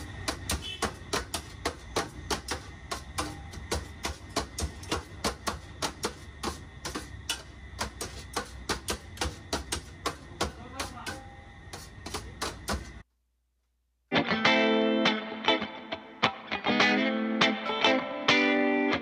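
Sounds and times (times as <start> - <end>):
knife and spatula clacking on metal tray: 0.1 - 12.9.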